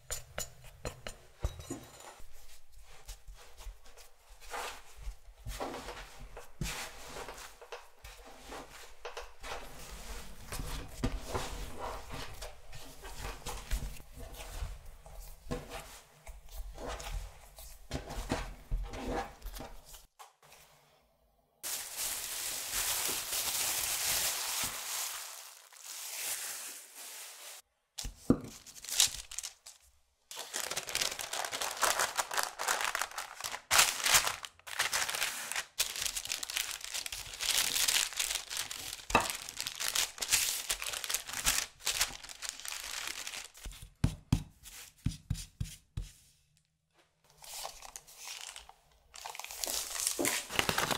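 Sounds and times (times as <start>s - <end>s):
sheet crinkling: 21.6s - 27.6s, 28.5s - 43.8s, 47.4s - 50.9s
hands kneading dough: 34.7s - 46.4s.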